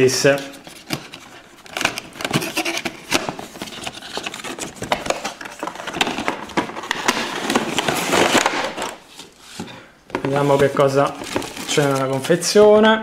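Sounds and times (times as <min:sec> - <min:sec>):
cardboard box being opened: 0:00.6 - 0:12.4
cardboard clicking: 0:00.7 - 0:09.3.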